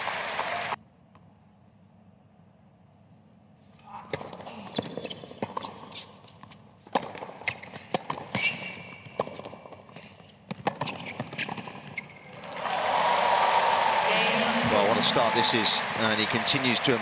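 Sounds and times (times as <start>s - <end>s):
applause: 0.0s - 0.8s, 12.3s - 17.0s
shoe squeaks: 7.4s - 9.6s, 10.6s - 12.4s.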